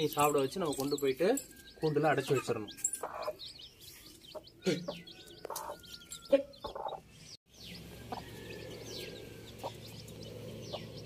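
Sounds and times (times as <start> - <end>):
chicks peeping: 1.8 - 11.0
hen clucking: 4.3 - 7.1.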